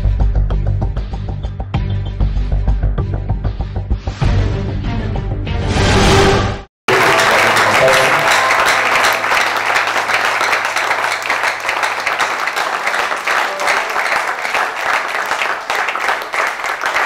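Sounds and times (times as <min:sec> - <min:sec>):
crowd clapping: 0:06.9 - 0:17.0.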